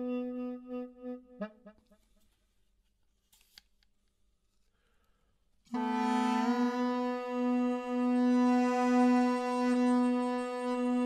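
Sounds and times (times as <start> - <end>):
gourd reed pipe with drone: 5.8 - 11.0.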